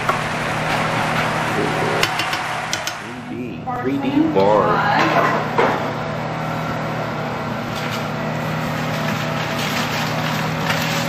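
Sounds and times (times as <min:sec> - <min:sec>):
kitchen hum and hiss: 0:00.0 - 0:11.0
wooden spoon scraping pot: 0:07.7 - 0:11.0.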